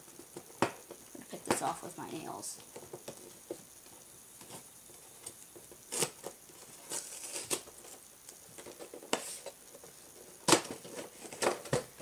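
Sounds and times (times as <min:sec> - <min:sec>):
fingernails tearing cardboard: 0:05.9 - 0:07.8.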